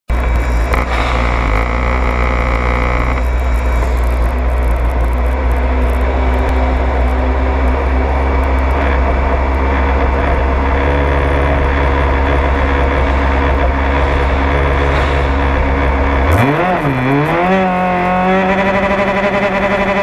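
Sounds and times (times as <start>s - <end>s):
steady low drone: 0.1s - 19.2s
leaf blower running: 0.2s - 4.2s, 16.2s - 20.0s.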